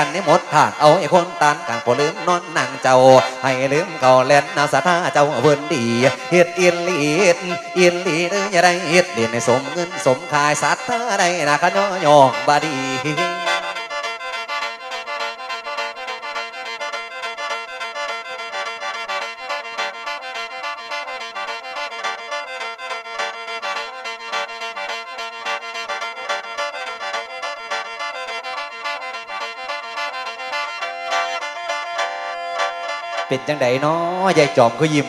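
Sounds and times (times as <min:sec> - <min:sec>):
reedy mouth organ melody: 0:00.0 - 0:35.0.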